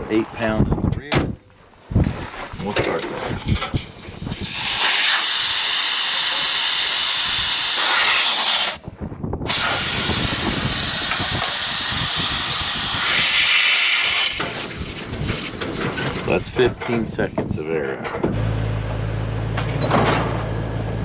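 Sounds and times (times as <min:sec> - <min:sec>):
air hissing from tire valve: 0:03.4 - 0:08.8, 0:09.4 - 0:15.6.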